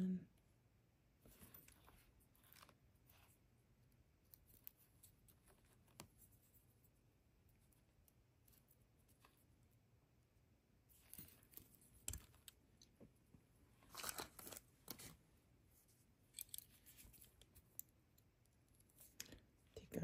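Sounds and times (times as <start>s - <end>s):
rustles and scrapes: 1.2s - 3.5s, 10.9s - 12.6s, 13.7s - 17.8s.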